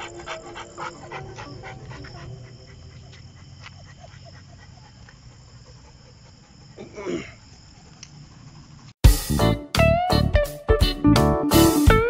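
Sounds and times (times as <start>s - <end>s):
dog panting: 0.0s - 9.0s.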